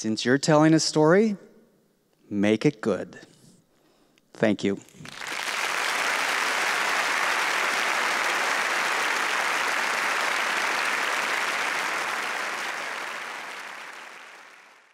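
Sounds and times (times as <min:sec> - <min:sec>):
audience applauding: 0:04.9 - 0:14.9.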